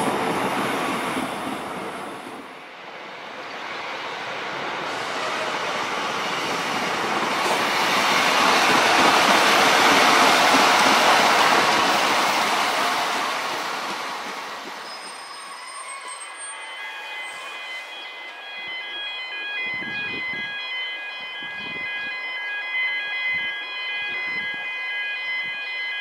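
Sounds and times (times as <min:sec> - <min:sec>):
train engine and wheel noise: 0:00.0 - 0:26.0.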